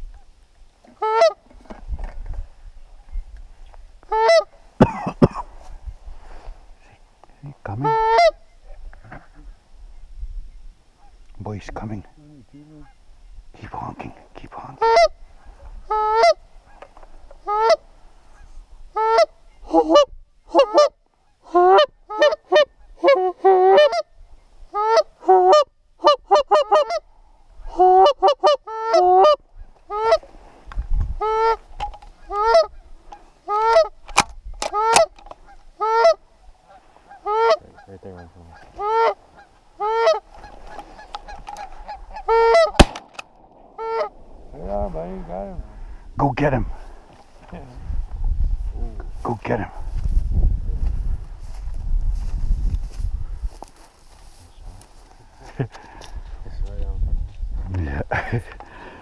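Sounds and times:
goose call honks and clucks: 0.9s - 1.5s, 4.1s - 5.4s, 7.7s - 9.5s, 12.6s - 13.0s, 14.7s - 30.3s, 31.2s - 43.0s, 43.8s - 44.2s.

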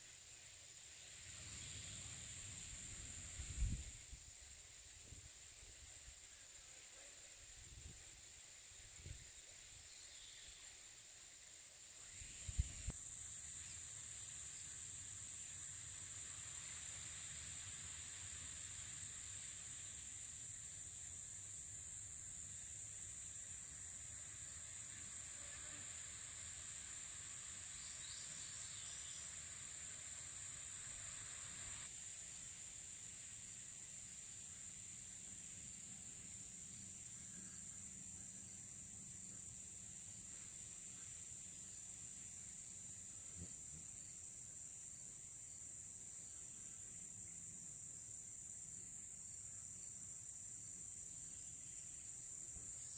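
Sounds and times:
shriller insect layer: 0.0s - 52.9s
insect chorus shrilling: 1.0s - 4.5s, 12.0s - 32.6s.

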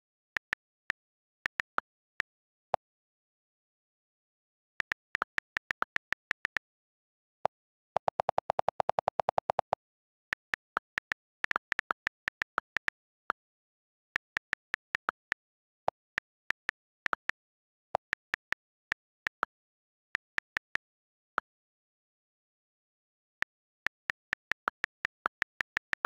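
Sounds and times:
on-screen keyboard typing clicks: 4.8s - 6.7s, 7.5s - 13.6s, 14.2s - 20.8s.

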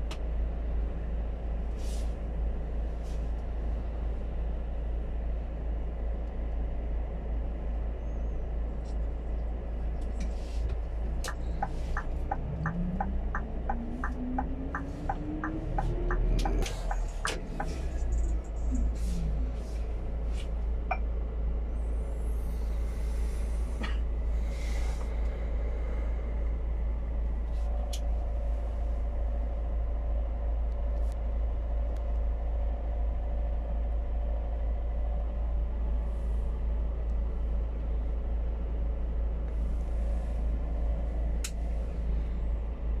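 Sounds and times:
truck engine rumble: 0.0s - 43.0s
light clicks in cab: 9.9s - 18.8s, 41.4s - 41.6s.

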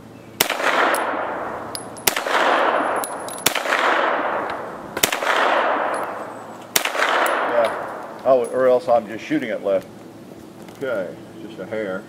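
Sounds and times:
pistol gunshots: 0.4s - 8.2s
long rolling echo: 0.4s - 9.6s.

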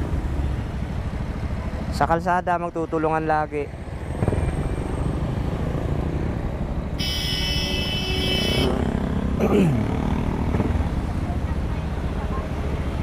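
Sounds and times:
city traffic rumble: 0.0s - 13.0s
passing engine: 0.0s - 13.0s
high steady horn: 7.0s - 8.8s.

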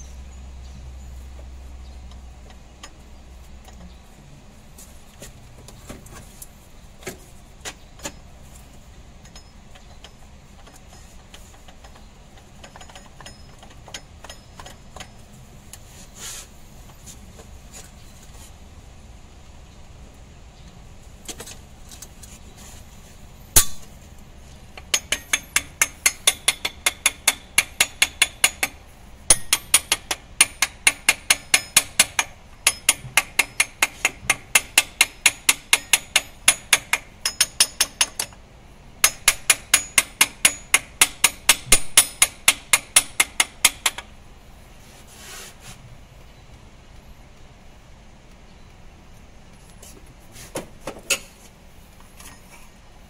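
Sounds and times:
hard hammer strike: 23.6s - 24.0s, 24.9s - 38.3s, 39.0s - 44.1s.

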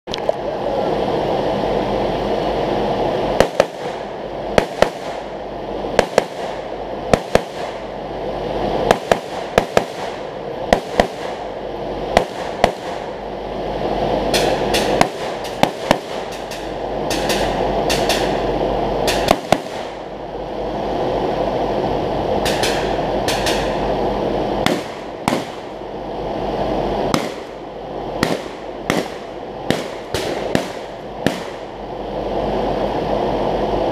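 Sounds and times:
rapid gunshots: 3.4s - 5.2s, 6.0s - 6.6s, 7.2s - 7.8s, 8.9s - 11.4s, 12.2s - 13.1s, 14.4s - 18.4s, 19.1s - 20.0s, 24.6s - 25.7s, 27.1s - 27.5s, 28.2s - 31.6s.

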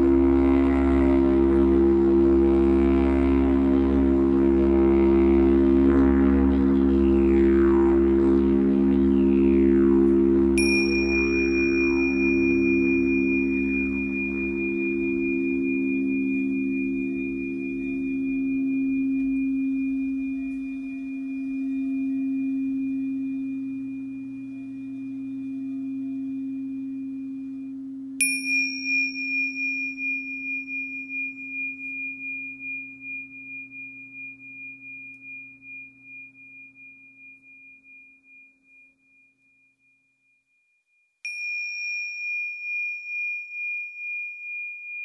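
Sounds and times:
steady high ringing tone: 0.0s - 45.0s
crystal singing bowl ringing: 9.1s - 45.0s
bell-like instrument struck: 10.6s - 25.2s, 28.2s - 40.7s, 41.3s - 45.0s.

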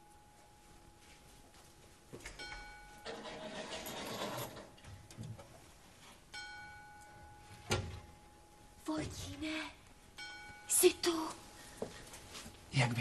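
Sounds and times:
soft chime notes ringing: 0.0s - 3.8s, 6.2s - 12.4s.

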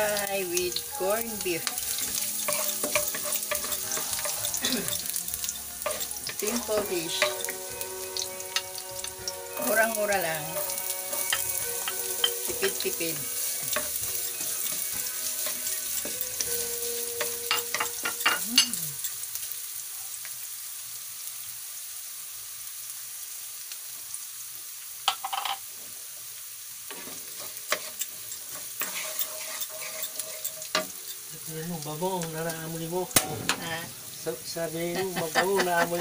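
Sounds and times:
garlic and onion sizzling in oil: 0.0s - 36.0s
wooden spatula scraping a pan: 1.7s - 16.6s, 26.9s - 31.5s.

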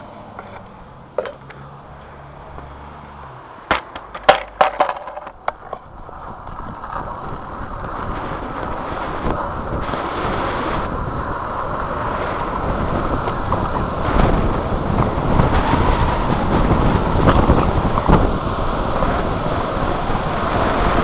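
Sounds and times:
longboard wheels rolling on asphalt: 0.0s - 21.0s
sharp knocks and clacks: 3.7s - 5.9s.

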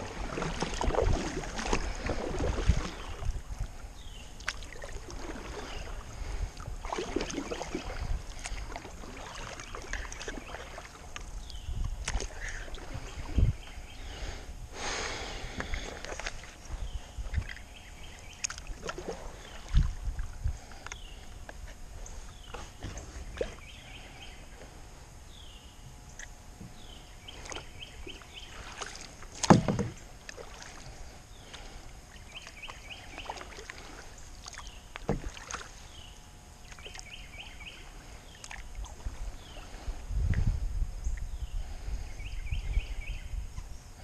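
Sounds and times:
paddle splashing and dripping: 0.0s - 13.8s, 15.4s - 21.6s, 27.3s - 39.9s
paddle knocking plastic hull: 29.4s - 30.4s, 35.0s - 35.5s.

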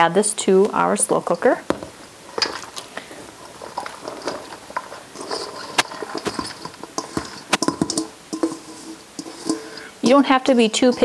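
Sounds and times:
vegetables tumbling into broth: 0.6s - 11.0s
bowl clicking and knocking: 3.7s - 10.0s.

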